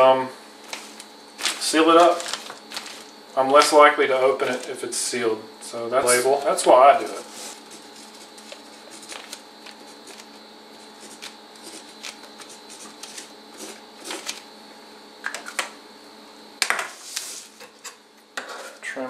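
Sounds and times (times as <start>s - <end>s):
plastic bag rustling: 0.6s - 5.1s, 6.0s - 14.5s
marker scratching on plastic: 7.3s - 14.2s.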